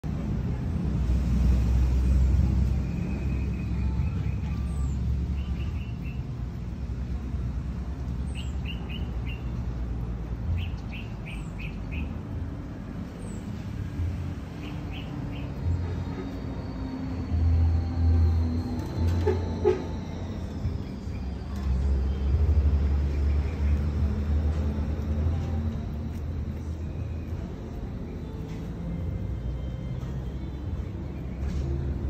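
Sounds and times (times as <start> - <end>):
small birds chirping: 2.6 - 7.3, 8.0 - 19.0, 19.9 - 27.0.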